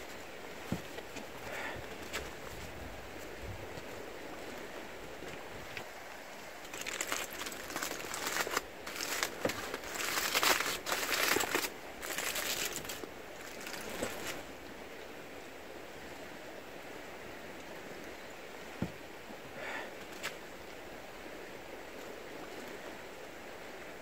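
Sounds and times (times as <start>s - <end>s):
aluminium foil crinkling: 6.6s - 14.4s.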